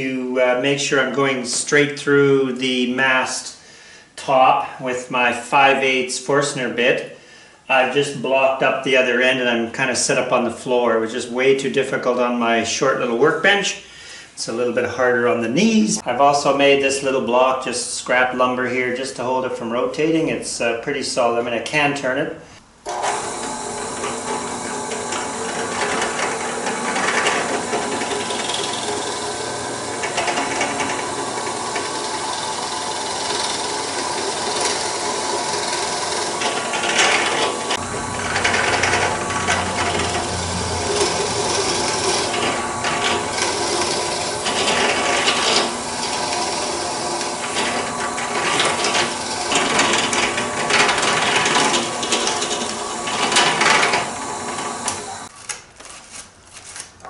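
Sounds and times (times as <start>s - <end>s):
drill press boring into wood: 22.8s - 55.3s.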